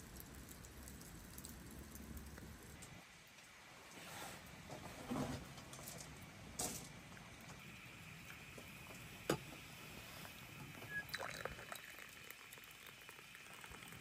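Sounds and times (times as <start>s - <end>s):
hot water running from a tap: 0.0s - 4.6s, 6.1s - 14.0s
tea pouring into a glass: 10.2s - 14.0s.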